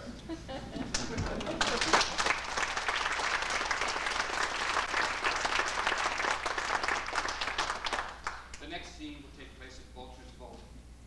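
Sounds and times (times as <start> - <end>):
audience applauding: 0.8 - 8.6.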